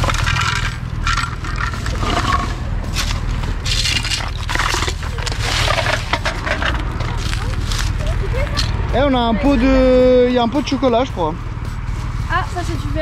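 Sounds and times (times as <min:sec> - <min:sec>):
footsteps crunching on gravel and leaves: 0:01.0 - 0:08.8.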